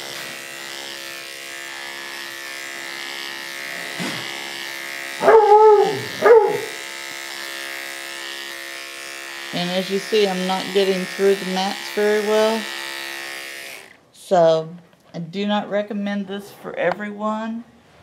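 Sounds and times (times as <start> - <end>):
dog clippers humming: 0.0 - 14.0
dog yelping: 5.2 - 6.8.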